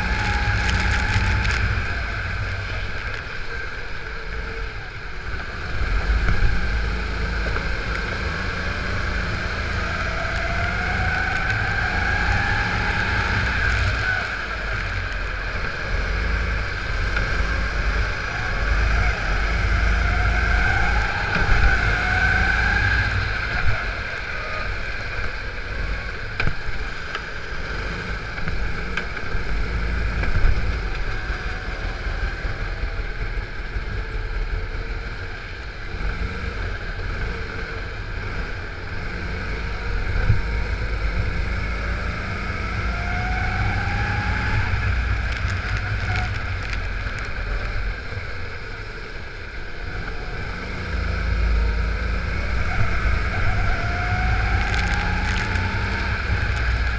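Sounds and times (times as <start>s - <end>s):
go-kart engine racing: 0.0s - 56.9s
wind rumble on microphone: 0.0s - 56.9s.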